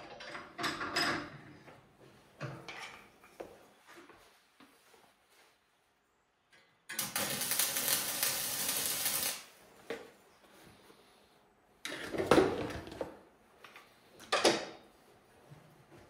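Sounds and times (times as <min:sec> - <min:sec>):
arc welding crackling sizzle: 0:06.9 - 0:09.6.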